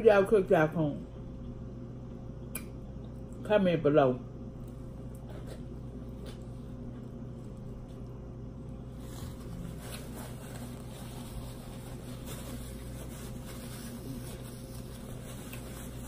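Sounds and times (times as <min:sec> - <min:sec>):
low hum with even tones: 0:00.0 - 0:16.0
paper towel rustling: 0:08.7 - 0:16.0.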